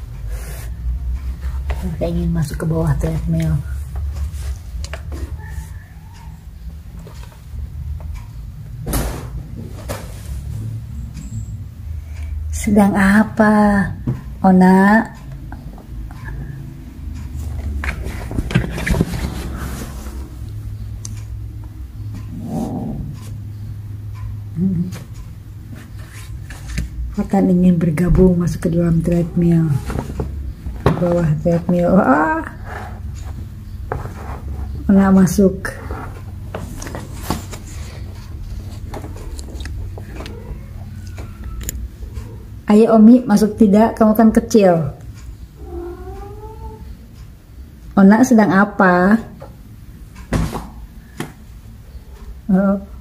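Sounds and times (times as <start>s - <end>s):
steady low hum: 0.0s - 53.0s
kittens scratching and pawing: 17.4s - 20.5s, 24.9s - 27.2s, 35.6s - 42.5s.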